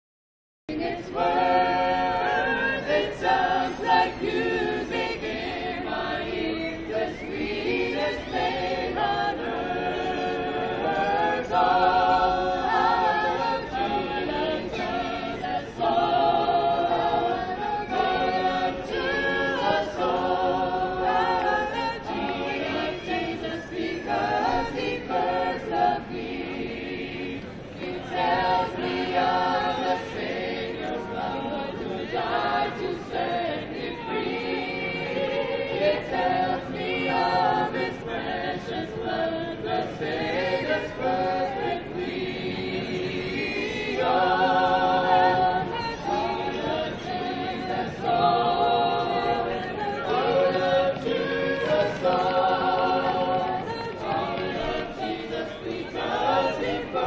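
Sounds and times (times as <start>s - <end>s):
choir singing a cappella: 0.7s - 57.0s.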